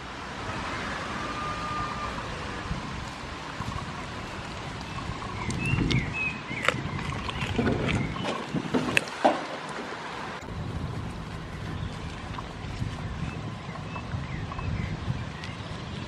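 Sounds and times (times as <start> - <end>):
wind on microphone: 0.4 - 9.1, 10.4 - 16.0
goats nibbling: 3.0 - 9.8, 10.9 - 14.2.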